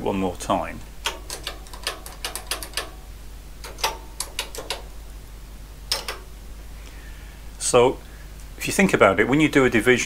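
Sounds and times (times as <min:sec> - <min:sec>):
calculator keys clacking: 0:01.0 - 0:03.0, 0:03.6 - 0:04.9, 0:05.9 - 0:06.3.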